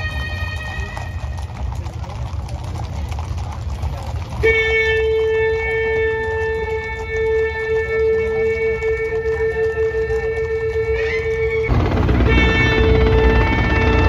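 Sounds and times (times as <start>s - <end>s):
band wind instruments held note: 0.0s - 1.9s, 4.3s - 14.0s
steady low rumble: 11.3s - 14.0s.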